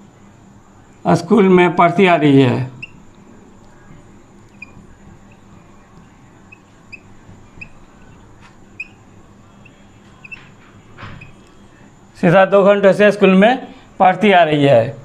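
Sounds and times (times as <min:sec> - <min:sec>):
faint room hum: 0:00.0 - 0:15.0
whiteboard marker squeaking: 0:02.7 - 0:03.2, 0:04.4 - 0:11.7.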